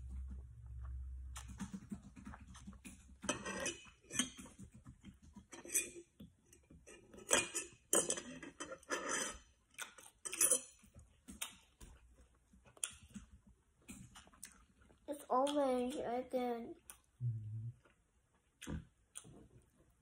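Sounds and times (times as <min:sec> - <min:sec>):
metal cutlery clinking on ceramic dish: 0:03.2 - 0:04.5, 0:05.4 - 0:06.1, 0:06.8 - 0:09.4, 0:10.2 - 0:10.9.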